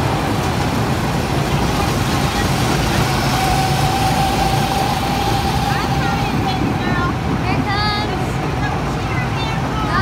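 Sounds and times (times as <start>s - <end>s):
go-kart engines droning: 0.0s - 10.0s.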